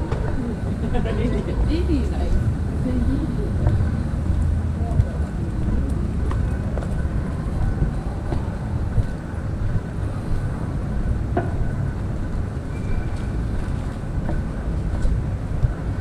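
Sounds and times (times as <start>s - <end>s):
city street rumble: 0.0s - 16.0s.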